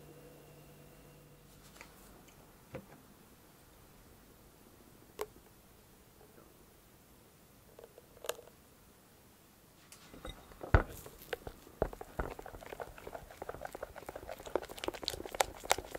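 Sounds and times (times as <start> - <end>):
dishes clinking: 10.2 - 10.9.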